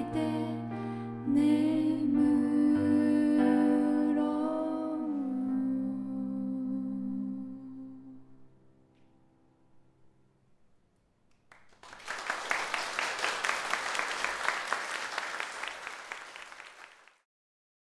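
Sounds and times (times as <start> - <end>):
audience applauding: 11.3 - 17.2.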